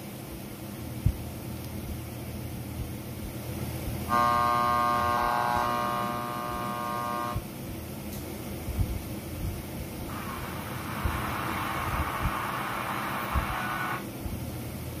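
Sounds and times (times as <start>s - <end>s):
buzzing tone: 4.1s - 7.5s, 10.1s - 14.1s
radio static hiss: 4.1s - 7.5s, 10.1s - 14.1s.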